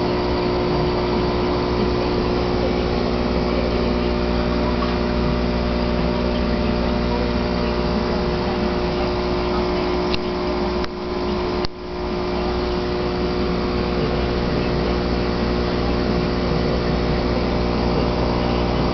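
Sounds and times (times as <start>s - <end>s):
aquarium equipment hum: 0.0s - 18.9s.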